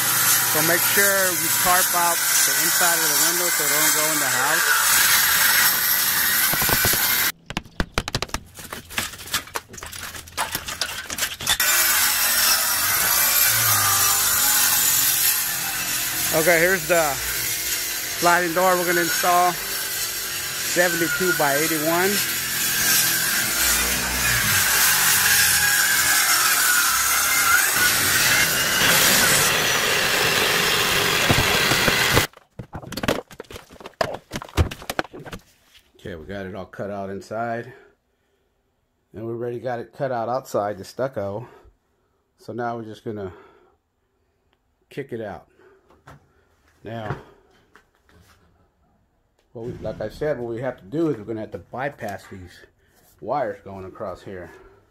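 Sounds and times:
saw grinding through stucco: 0.0 - 7.3, 10.5 - 32.3
knocks and clatter: 6.5 - 11.6.

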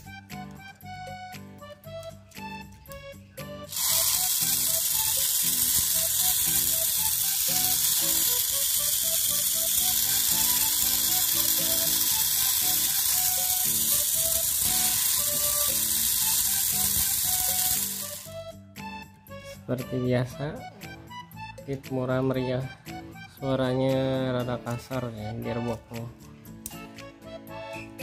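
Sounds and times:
toy car electric motor buzzing: 3.7 - 18.4.

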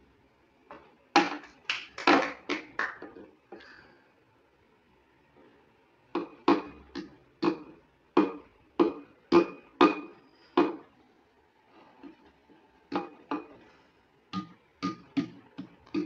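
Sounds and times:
metal tin knocking on wood: 14.4 - 16.0.

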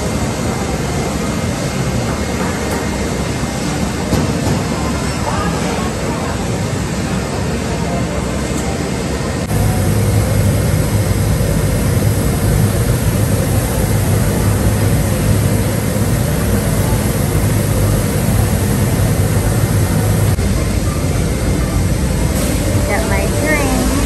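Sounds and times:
coffee roaster fans and motors: 0.0 - 24.0
low hum: 9.5 - 24.0.

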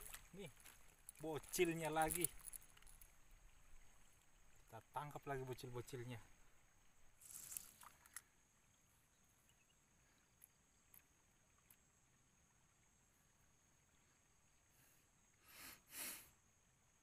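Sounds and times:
faint ticks: 0.0 - 5.1, 9.5 - 11.9
small splash on water: 0.0 - 5.4, 6.0 - 8.4.

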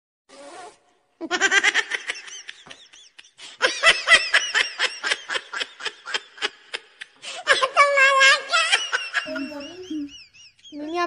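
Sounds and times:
high-pitched giggling: 6.8 - 11.0.

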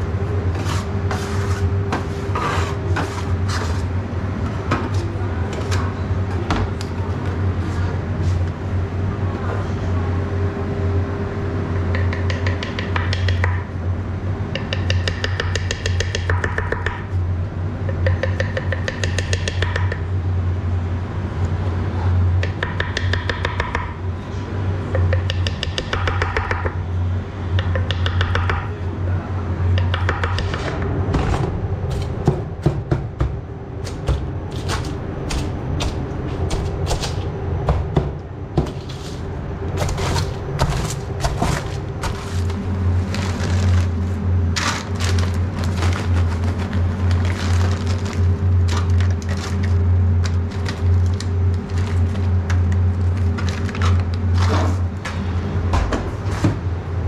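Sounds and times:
low machine hum: 0.0 - 57.0
utensils knocking and clicking: 11.8 - 13.7, 14.5 - 17.1, 17.9 - 20.1, 22.4 - 23.9, 24.9 - 26.8, 27.5 - 28.7, 29.7 - 30.9.

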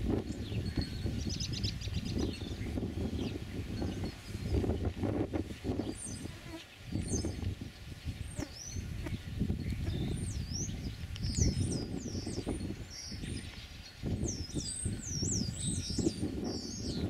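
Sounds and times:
songbird chirping: 5.7 - 17.0.

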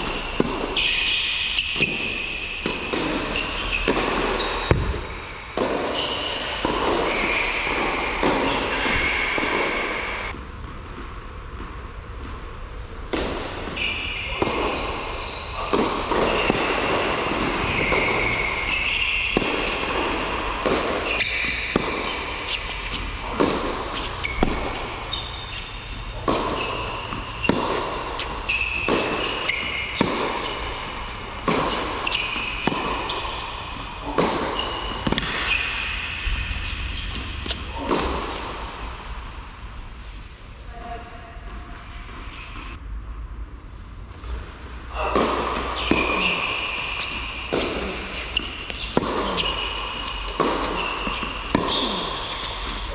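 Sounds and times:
ball bouncing: 0.0 - 10.0, 15.6 - 38.7
racket striking ball: 0.0 - 10.2, 15.7 - 38.7, 45.1 - 52.9
shoe squeaks: 0.0 - 10.3, 13.6 - 38.5, 45.0 - 52.9.

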